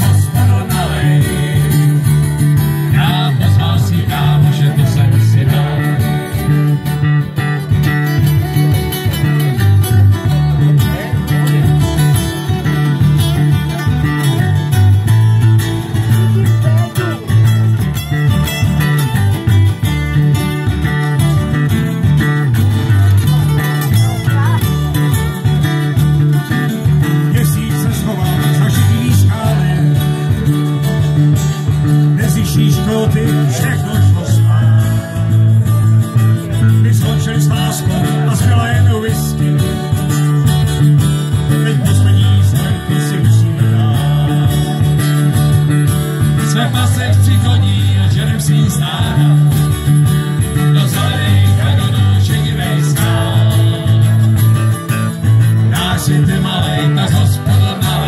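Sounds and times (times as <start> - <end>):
acoustic guitars strummed: 0.0 - 58.0
electric bass line: 0.0 - 58.0
person singing: 55.6 - 58.0.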